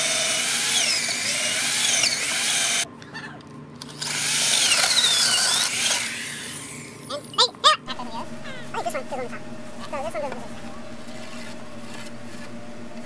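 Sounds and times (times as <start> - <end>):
cordless drill whining into wood: 0.0 - 2.9, 3.8 - 7.1.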